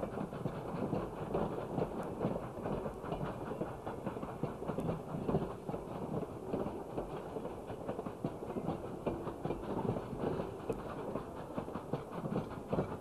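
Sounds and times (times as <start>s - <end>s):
steam train wheels clattering: 0.0s - 13.0s.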